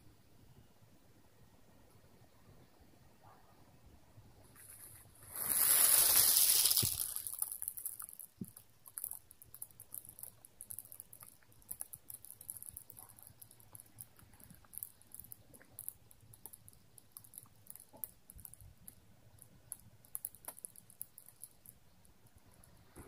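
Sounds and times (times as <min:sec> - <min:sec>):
faint high ticks and crackles: 0:04.4 - 0:23.0
handling rustle of small device: 0:04.5 - 0:11.3.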